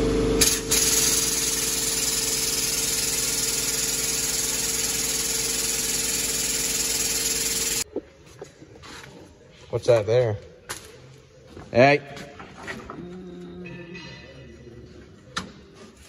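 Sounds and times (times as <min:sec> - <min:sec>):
hydraulic press pump hissing: 0:00.4 - 0:07.8.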